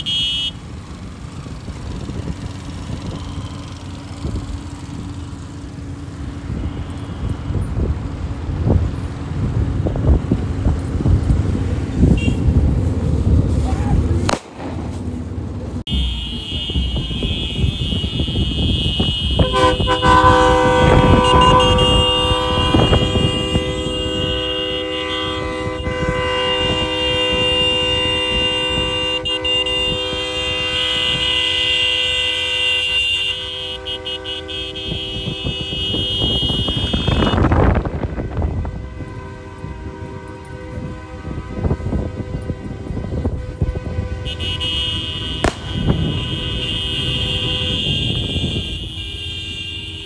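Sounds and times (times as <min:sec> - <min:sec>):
high vehicle horn blaring: 0:00.0 - 0:00.7, 0:02.1 - 0:08.8, 0:11.9 - 0:13.6, 0:15.8 - 0:50.0
engines rumbling: 0:00.0 - 0:50.0
deep multi-note horn: 0:19.3 - 0:32.5.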